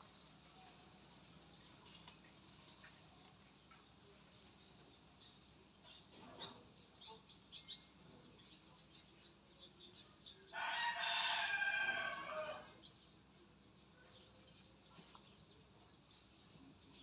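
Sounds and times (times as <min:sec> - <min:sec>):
rooster crowing: 0:10.5 - 0:12.8.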